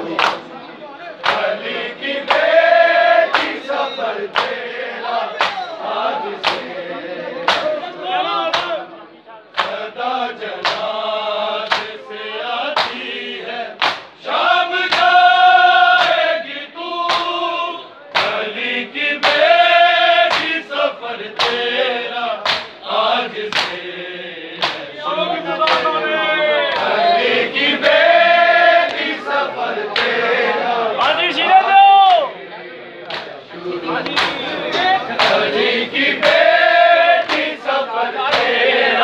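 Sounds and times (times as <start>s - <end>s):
chest-beating slaps: 1.2s - 1.5s, 3.3s - 3.6s, 4.3s - 4.6s, 5.4s - 5.7s, 6.4s - 6.7s, 7.5s - 7.8s, 8.5s - 8.8s, 9.6s - 9.8s, 10.6s - 10.9s, 11.6s - 12.0s, 12.8s - 13.0s, 13.8s - 14.1s, 14.9s - 15.2s, 16.0s - 16.2s, 17.0s - 17.4s, 18.1s - 18.4s, 19.2s - 19.4s, 20.3s - 20.6s, 21.4s - 21.7s, 22.4s - 22.8s, 23.5s - 23.8s, 24.6s - 24.9s, 34.0s - 36.5s, 37.2s - 37.6s, 38.3s - 38.6s
men chanting in chorus: 1.2s - 8.9s, 9.6s - 39.0s.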